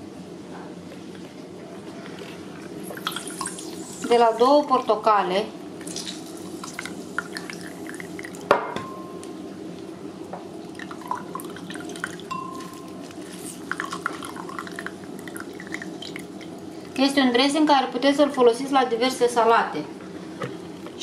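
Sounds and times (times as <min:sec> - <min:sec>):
juice dripping into a glass: 0:02.7 - 0:04.6, 0:05.8 - 0:08.5, 0:10.6 - 0:17.0.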